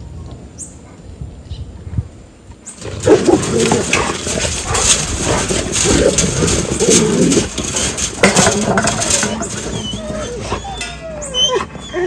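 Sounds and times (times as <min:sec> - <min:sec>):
dogs barking excitedly: 0:02.7 - 0:12.0.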